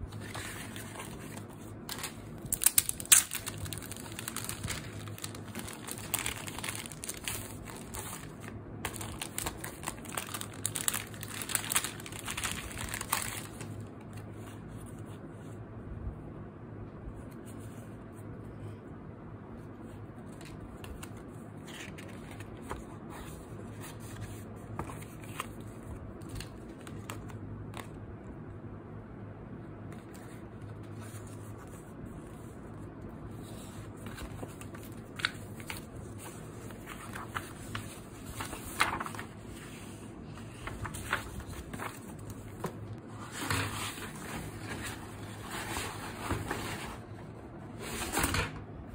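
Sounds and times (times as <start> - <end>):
cards and paper handled: 0.0 - 15.0, 20.2 - 27.9, 33.3 - 46.9
plastic sleeve crinkling: 0.2 - 13.7, 34.2 - 39.4.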